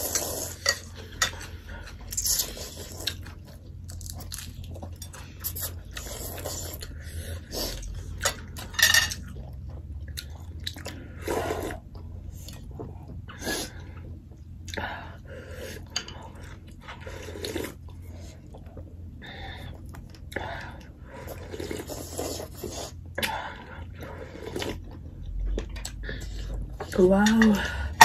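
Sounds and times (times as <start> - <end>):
slurping noodles: 0.0 - 0.8, 21.2 - 23.0
chewing: 0.0 - 14.8.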